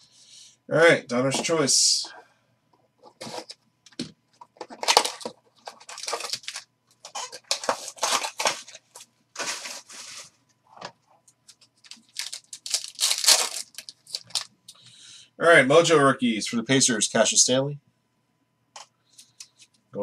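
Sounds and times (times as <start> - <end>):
packaging ripping and crinkling: 4.6 - 10.3, 11.8 - 14.5.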